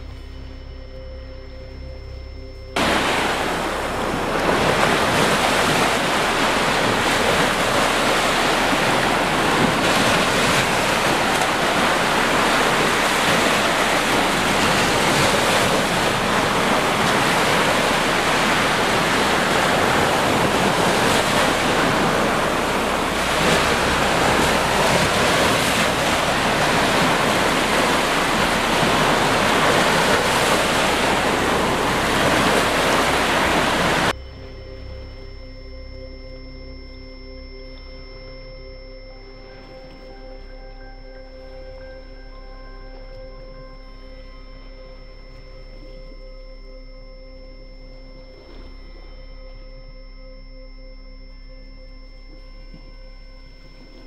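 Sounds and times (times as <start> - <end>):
waves breaking on beach: 2.8 - 34.1.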